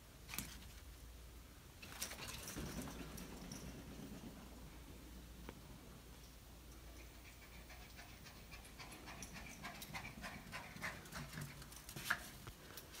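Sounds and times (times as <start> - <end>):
dog panting rapidly: 7.1 - 11.7.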